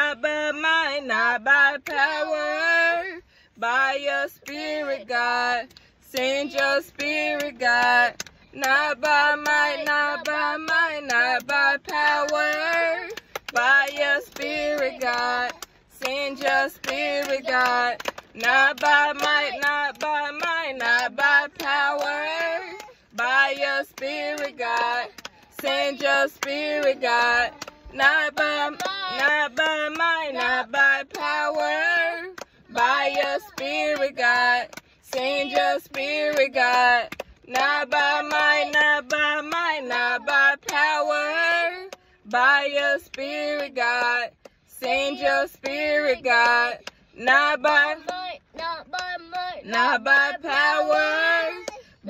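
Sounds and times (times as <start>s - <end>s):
woman singing: 0.0s - 52.0s
hands clapping: 5.7s - 31.7s, 32.3s - 39.7s, 47.6s - 51.9s.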